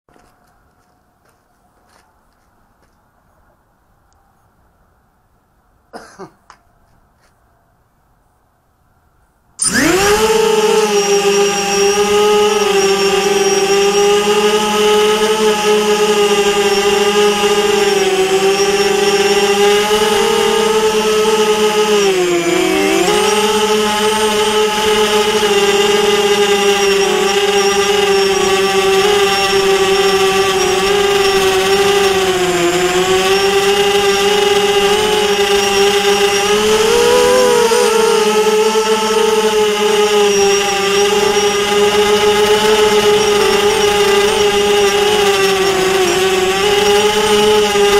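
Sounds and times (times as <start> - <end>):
drone motors whining: 9.6 - 47.9.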